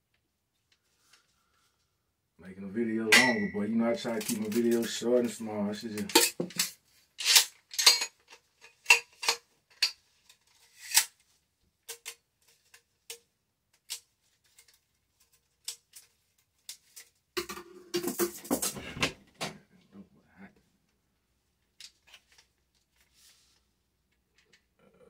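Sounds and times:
scraping and handling noise: 3.3 - 13.2, 13.8 - 19.6
metal parts clicking and tapping: 6.0 - 10.0.

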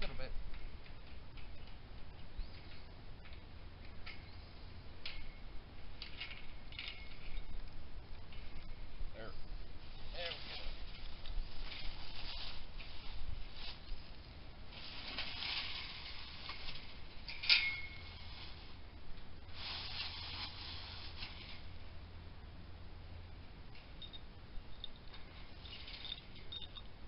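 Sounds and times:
chain-link fence rattling: 5.0 - 8.8, 15.0 - 18.7, 24.0 - 26.9
sharp metal clink: 17.3 - 18.1.

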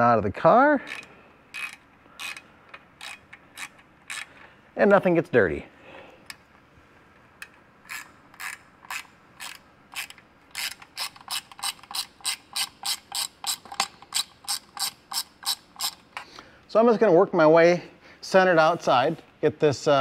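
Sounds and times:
hand ratchet clicking: 0.8 - 4.5, 7.4 - 16.0.

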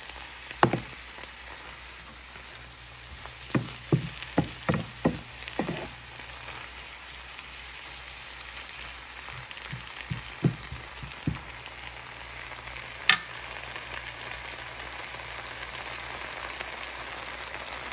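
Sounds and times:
leaves sizzling in a frying pan: 0.0 - 17.9
wooden spatula knocking on pan: 0.6 - 1.0, 3.5 - 5.9, 9.3 - 11.6.

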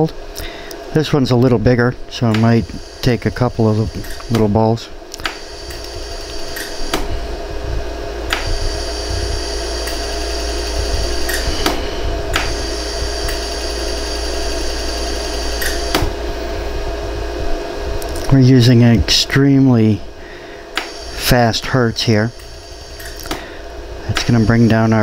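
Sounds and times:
machine hum: 0.0 - 25.0
laser pulse ticks: 2.2 - 4.5, 5.2 - 7.0, 8.3 - 16.1, 20.8 - 21.5, 22.3 - 23.4, 24.1 - 25.0.

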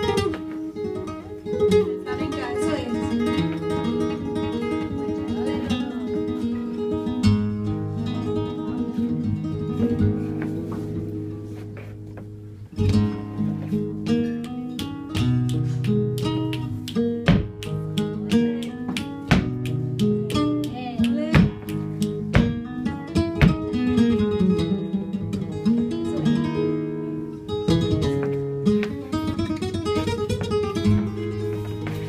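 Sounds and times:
flamenco guitar playing: 0.0 - 32.0
sharp percussive strikes: 14.4 - 22.7.

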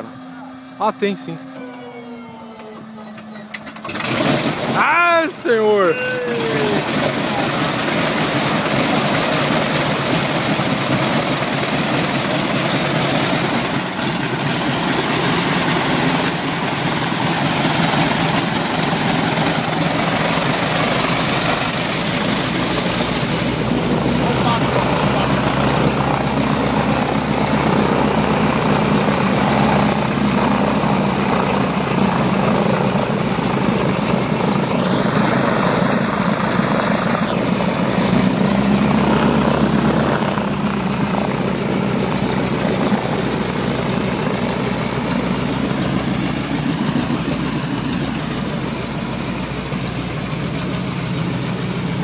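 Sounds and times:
propeller plane engine droning: 0.0 - 52.0.

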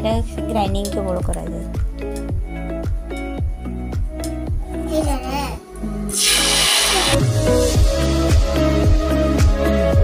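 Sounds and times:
electronic beat music: 6.1 - 10.0.

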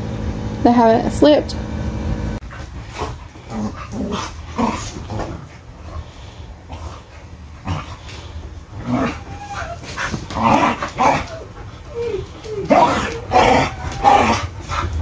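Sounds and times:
air conditioner hum: 0.0 - 15.0.

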